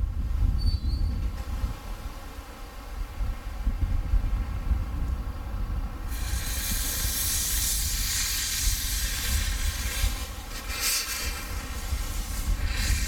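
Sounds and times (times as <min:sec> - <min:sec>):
steam locomotive venting steam: 0:06.0 - 0:13.0.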